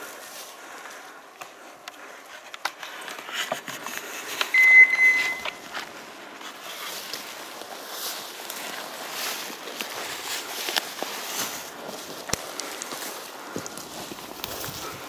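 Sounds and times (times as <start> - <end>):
high-pitched tone: 4.5 - 5.6
footsteps on dry pine needles: 5.1 - 15.0.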